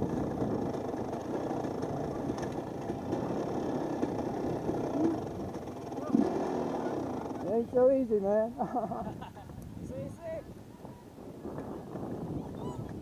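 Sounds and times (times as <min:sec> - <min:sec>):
dirt bike engine running: 0:00.0 - 0:08.2.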